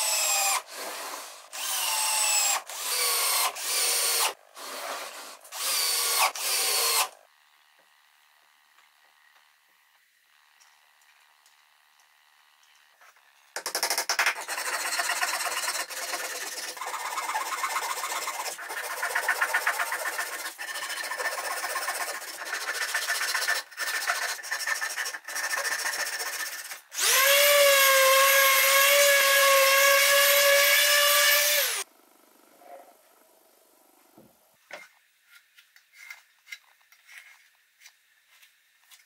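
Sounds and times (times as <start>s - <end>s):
power tool motor running: 0.0s - 7.2s, 26.9s - 31.8s
hand saw rasping through wood: 14.4s - 27.3s.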